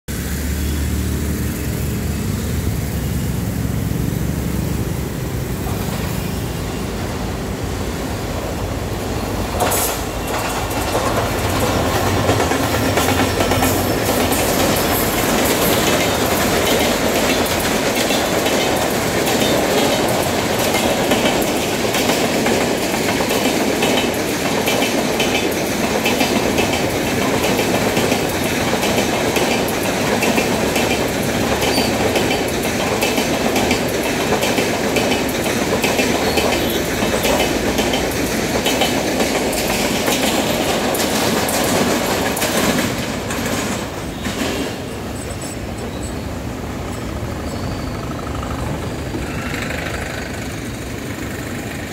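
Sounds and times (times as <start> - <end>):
locomotive engine drone: 0.1 - 22.0, 44.8 - 51.9
train wheels clattering over rail joints: 8.4 - 46.2.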